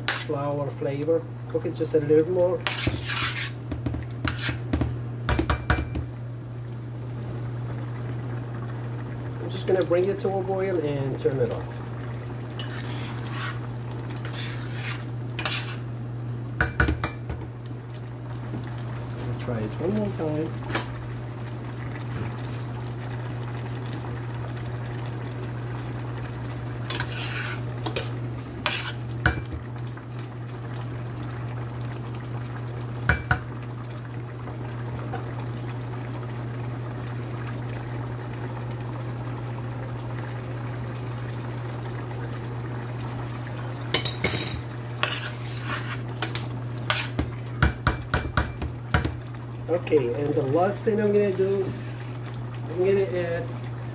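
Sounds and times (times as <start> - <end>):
metal spoon scraping a pan: 0.0 - 0.4, 2.6 - 3.6, 4.2 - 4.7, 12.6 - 13.6, 14.2 - 15.9, 26.9 - 29.4, 44.0 - 47.3.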